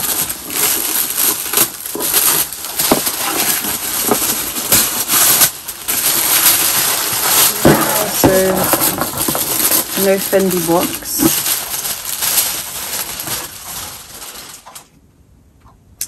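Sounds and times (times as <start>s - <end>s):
paper crinkling and rustling: 0.0s - 15.0s.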